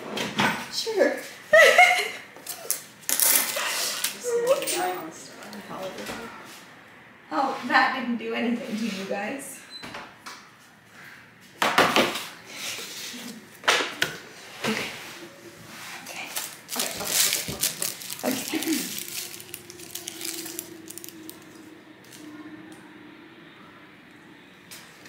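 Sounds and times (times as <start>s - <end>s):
steady low held tone: 18.9s - 25.0s.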